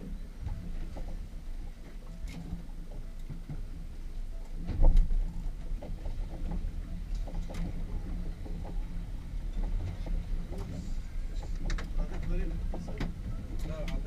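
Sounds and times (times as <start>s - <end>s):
water and wind against hull: 0.0s - 14.0s.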